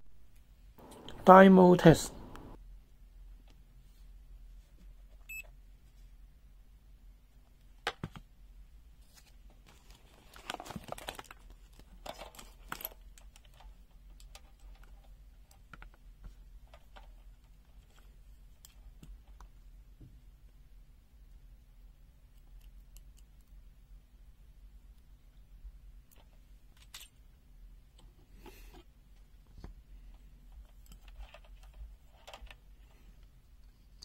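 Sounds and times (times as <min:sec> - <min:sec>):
rustling and clicking: 0:09.0 - 0:19.6, 0:27.9 - 0:34.0.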